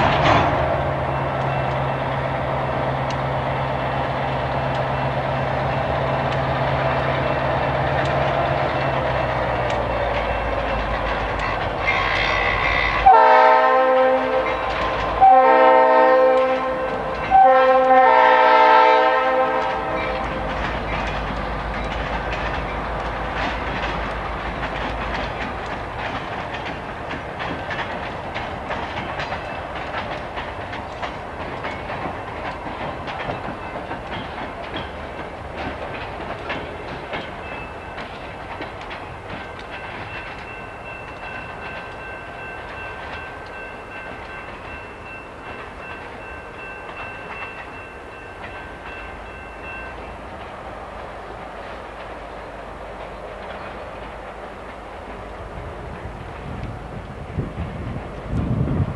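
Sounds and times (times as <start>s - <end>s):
diesel locomotive engine running: 0.0s - 58.9s
locomotive air horn blasts: 11.8s - 20.5s.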